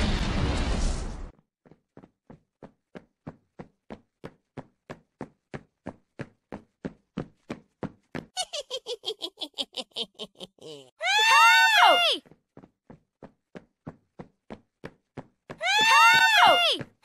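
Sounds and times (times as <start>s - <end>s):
cartoon footsteps: 11.5s - 17.0s.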